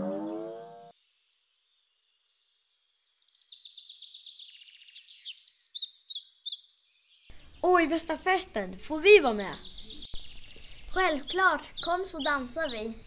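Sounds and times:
rising pitched tone: 0.0 - 0.9
birds chirping: 1.0 - 13.0.

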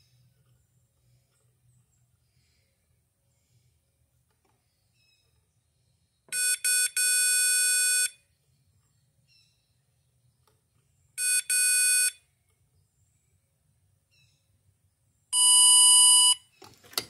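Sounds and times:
circuit tester beeping: 11.2 - 12.2, 15.4 - 16.4.

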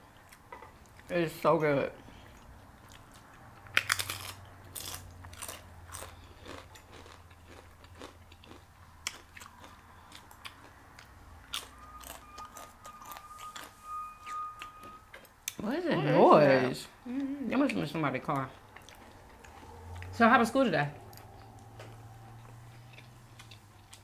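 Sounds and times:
chewing with clicks: 2.2 - 13.7, 17.7 - 20.2, 21.0 - 24.0
low hum: 9.8 - 24.0
faint steady whine: 10.8 - 24.0.

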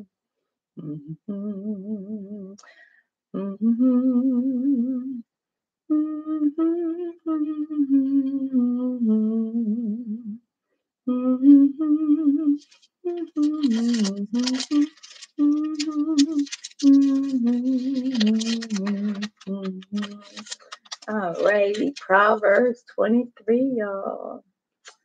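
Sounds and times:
woman humming a slow tune: 0.8 - 2.6, 3.4 - 5.2, 5.9 - 10.4, 11.1 - 20.3
woman breathing: 2.6 - 3.1.

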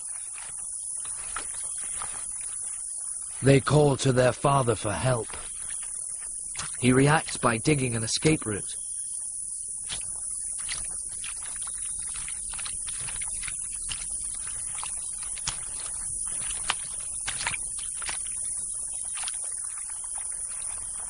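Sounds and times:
high insect chorus: 0.0 - 21.0
frog digging through mud: 9.8 - 21.0.

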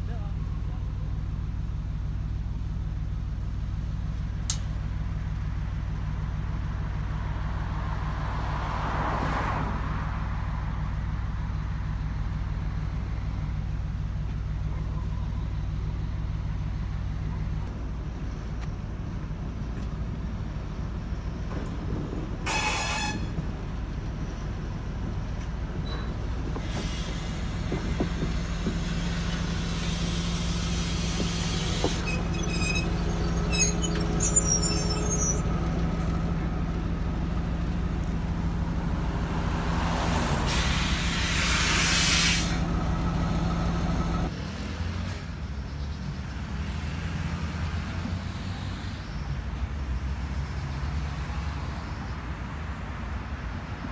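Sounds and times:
diesel locomotive engine running: 0.0 - 8.3, 10.1 - 44.4
wheels clicking and squealing: 21.3 - 36.3
loud air hiss: 26.6 - 31.9, 40.4 - 42.6.

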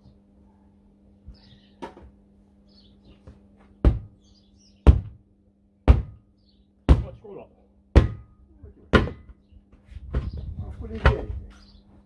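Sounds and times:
sledgehammer striking tyre rim: 5.9 - 6.2, 7.9 - 8.4.

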